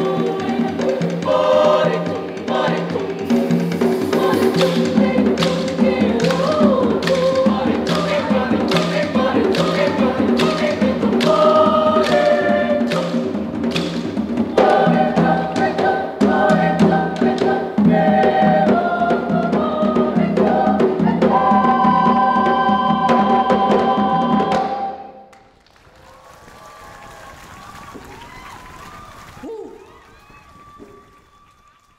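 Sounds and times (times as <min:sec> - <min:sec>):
drums and bamboo percussion: 0:00.0 - 0:25.2, 0:26.0 - 0:31.9
mixed choir singing: 0:00.0 - 0:25.3.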